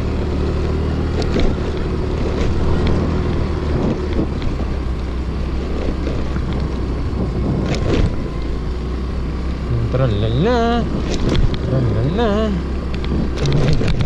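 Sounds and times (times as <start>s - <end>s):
scooter engine running: 0.0s - 14.0s
wind noise on microphone: 1.2s - 8.5s, 10.6s - 14.0s.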